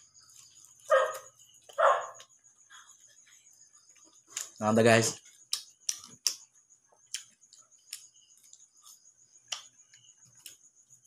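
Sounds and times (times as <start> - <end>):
mouth clicks from chewing: 7.1 - 8.6.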